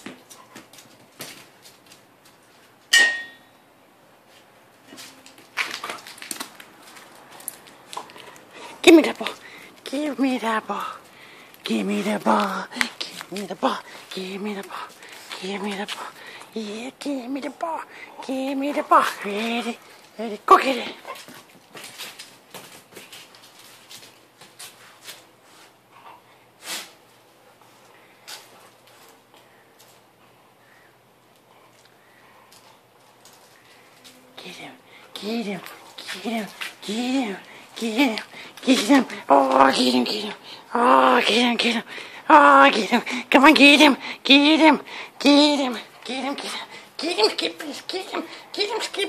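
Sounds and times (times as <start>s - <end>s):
metal dog bowl clanging: 3.0s - 3.5s
scuffs and clicks: 4.3s - 9.8s
dog claws scrabbling on concrete: 4.9s - 8.5s.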